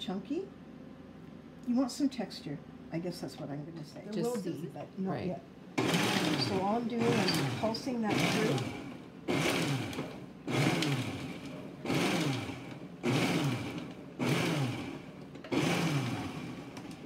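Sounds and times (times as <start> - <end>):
food processor motor pulsing: 5.8 - 17.0.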